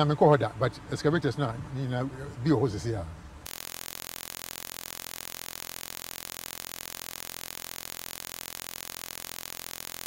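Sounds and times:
fluttering static hiss: 0:03.4 - 0:10.0.

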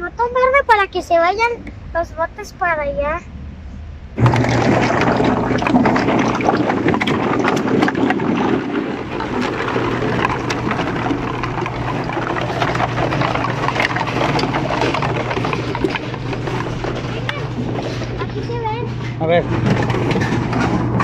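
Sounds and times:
machine motor hum: 0:04.2 - 0:21.0
plastic bottles clattering: 0:04.2 - 0:21.0.

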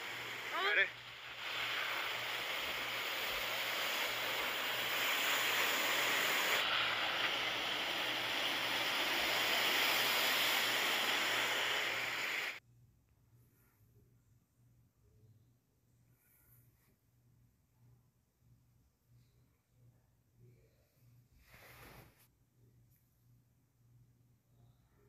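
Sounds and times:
surf washing over beach: 0:00.0 - 0:12.6.

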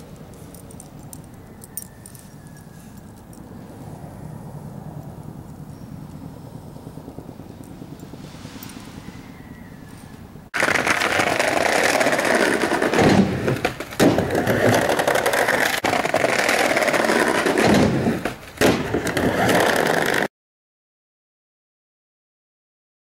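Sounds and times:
skateboard wheels rolling on bricks: 0:10.5 - 0:20.3
skateboard landing: 0:10.6 - 0:20.3.

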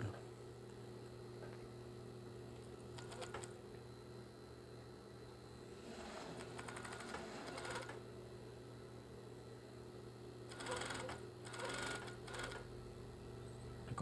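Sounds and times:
steady low machine hum: 0:00.0 - 0:14.0
sewing machine stitching rapidly: 0:03.0 - 0:03.5, 0:05.9 - 0:08.0, 0:10.5 - 0:12.6.

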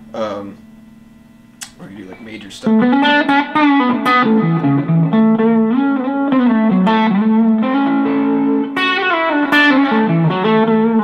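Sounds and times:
electric guitar picked notes: 0:02.6 - 0:11.0.

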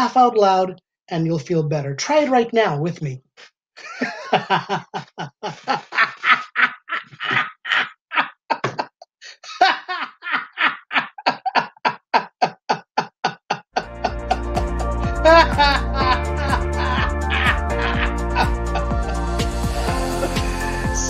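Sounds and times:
man laughing: 0:03.8 - 0:20.6.

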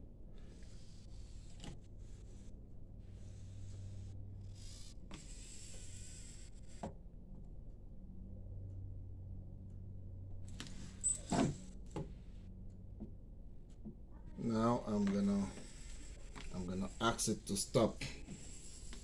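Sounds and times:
robot arm servo motors humming: 0:00.3 - 0:07.8, 0:14.2 - 0:19.0.

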